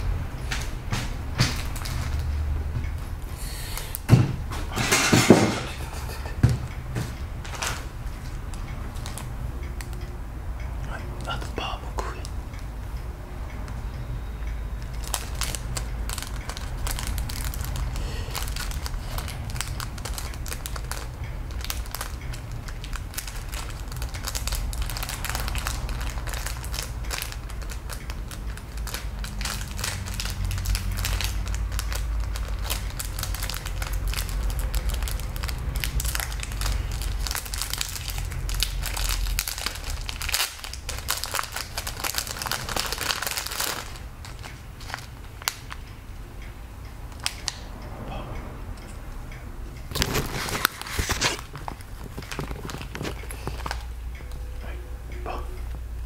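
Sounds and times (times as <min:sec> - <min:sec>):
plastic bag crinkling: 0:15.0 - 0:45.8, 0:49.9 - 0:53.9.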